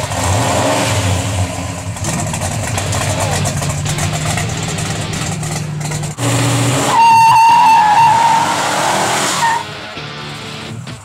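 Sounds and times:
car engine running: 0.0s - 11.0s
high-pitched tyre squeal: 6.2s - 9.8s.

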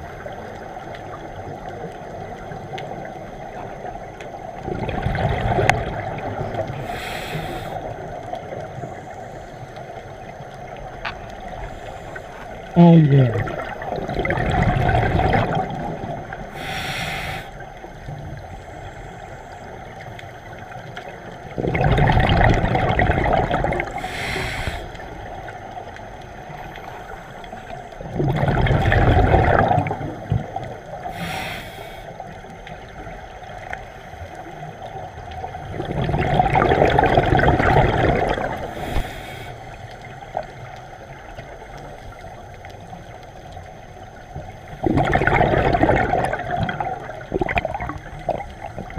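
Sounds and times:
exhaled bubbles rushing: 0.0s - 9.0s, 10.3s - 16.9s, 20.5s - 31.3s, 35.1s - 39.2s, 44.2s - 48.9s
regulator inhale hiss: 6.7s - 8.0s, 11.6s - 12.6s, 16.4s - 17.8s, 23.8s - 25.4s, 31.0s - 32.3s, 38.6s - 40.1s.

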